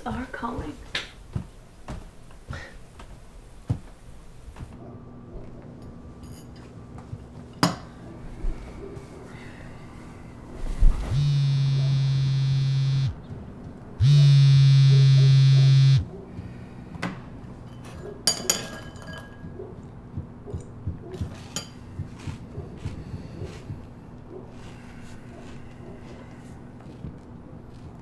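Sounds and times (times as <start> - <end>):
smartphone vibrating on wooden table: 11.1 - 13.2, 14.0 - 16.1.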